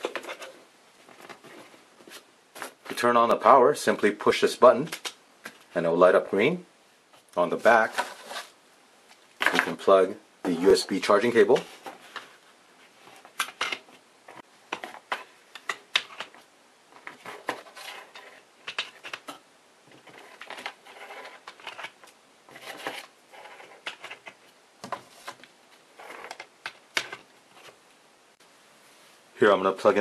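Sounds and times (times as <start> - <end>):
cables rustling on desk: 0.0 - 3.1, 7.1 - 9.8, 10.5 - 27.8.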